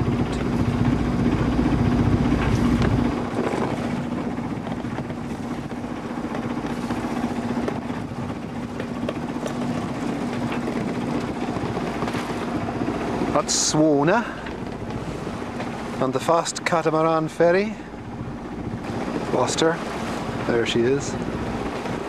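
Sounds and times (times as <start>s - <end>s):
heavy low rumble: 0.0s - 22.0s
wind and water hiss: 0.0s - 22.0s.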